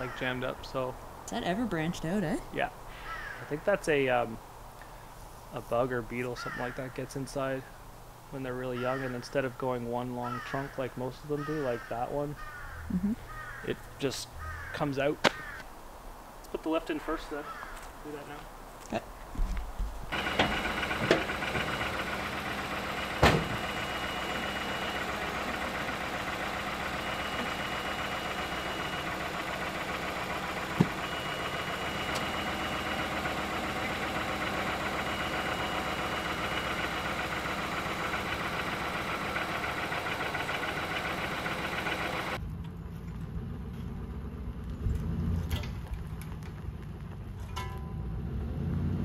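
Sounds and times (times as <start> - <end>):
engine idling: 20.1 - 48.2.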